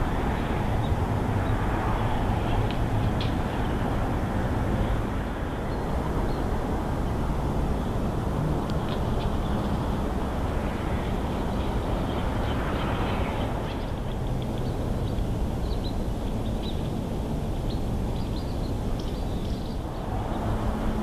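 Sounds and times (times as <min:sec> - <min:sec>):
small birds chirping: 0:11.6 - 0:20.4.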